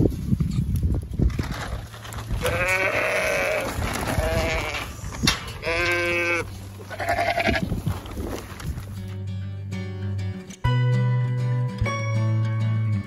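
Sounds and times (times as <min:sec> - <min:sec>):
rustling and handling noise: 0:00.0 - 0:09.3
ewes bleating: 0:02.4 - 0:05.0, 0:05.6 - 0:07.7.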